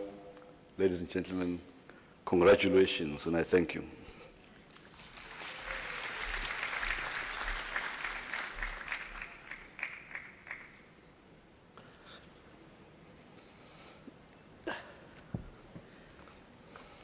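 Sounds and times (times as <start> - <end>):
audience applauding: 4.7 - 10.9.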